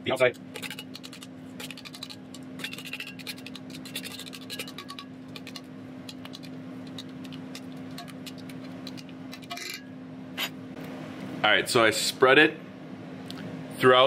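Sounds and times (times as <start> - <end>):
steady low hum: 0.0 - 14.0
utensil scraping a steel bowl: 0.5 - 9.8.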